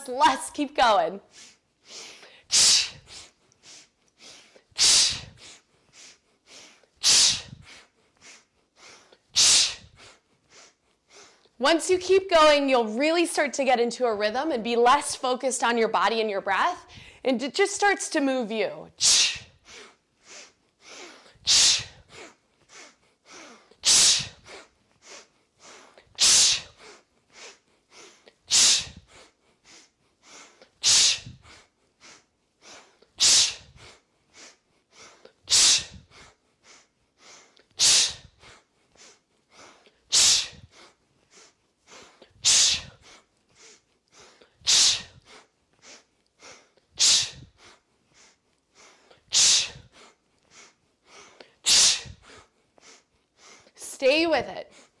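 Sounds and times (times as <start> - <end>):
short sniffed inhales through nose: 1.3 - 11.4, 19.0 - 53.8
forceful exhale through mouth: 7.0 - 10.2, 20.2 - 22.0, 28.5 - 29.2, 29.8 - 31.6, 35.5 - 38.6, 39.6 - 53.7.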